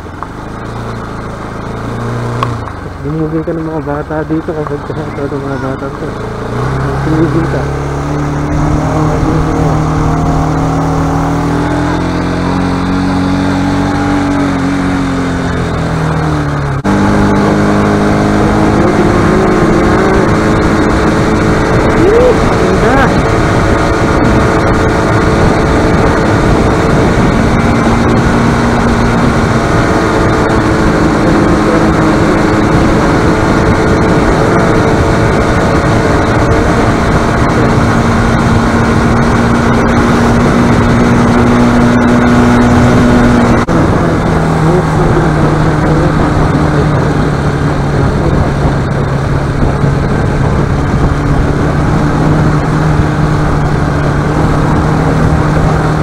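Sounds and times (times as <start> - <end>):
motorcycle engine running: 0.0 - 56.0
wind rush: 6.2 - 56.0.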